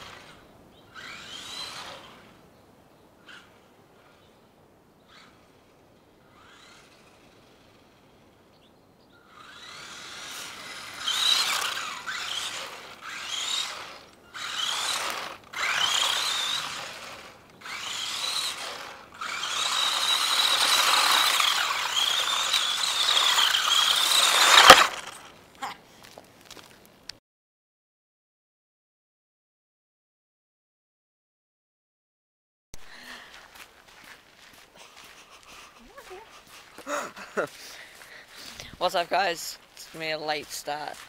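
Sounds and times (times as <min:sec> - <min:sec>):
rc truck electric motor whining: 0:00.0 - 0:02.4, 0:03.2 - 0:04.2, 0:05.1 - 0:08.4, 0:09.2 - 0:25.4.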